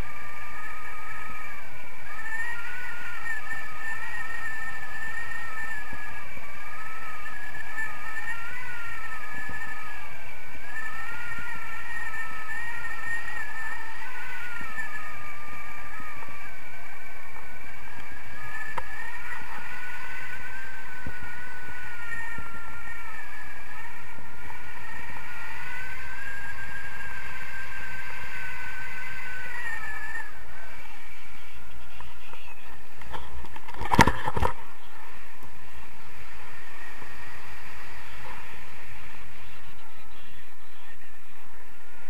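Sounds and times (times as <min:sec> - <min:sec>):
wavering whistle: 0:00.0 - 0:42.0.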